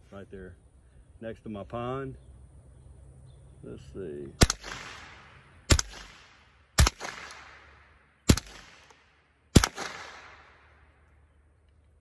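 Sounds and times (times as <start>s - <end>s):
rifle shots with echo: 4.4s - 11.0s.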